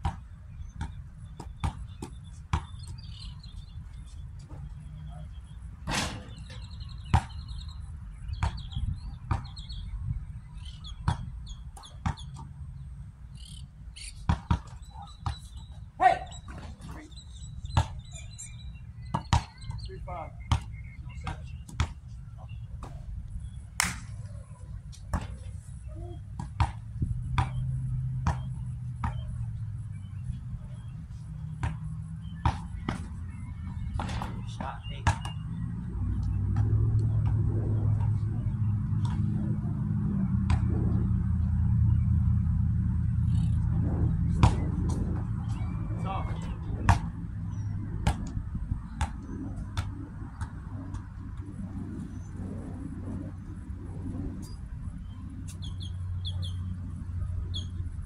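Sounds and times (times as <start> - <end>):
ball bouncing on hard court: 0.0 - 3.4, 5.8 - 7.6, 8.3 - 9.7, 10.6 - 12.6, 14.2 - 15.6, 17.7 - 18.1, 19.0 - 22.0, 25.1 - 25.5, 26.3 - 29.4, 31.5 - 39.6, 40.4 - 40.9, 44.2 - 51.1
birds chirping: 0.0 - 58.0
wind rumble on microphone: 3.0 - 13.2, 16.5 - 58.0
basketball hitting hoop: 5.8 - 7.4, 14.3 - 15.4, 33.9 - 35.4, 44.3 - 45.3.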